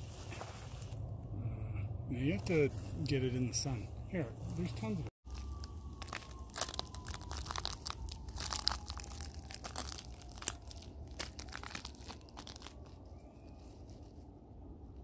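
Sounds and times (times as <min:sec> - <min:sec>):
footsteps crunching on twigs: 0:05.2 - 0:14.1.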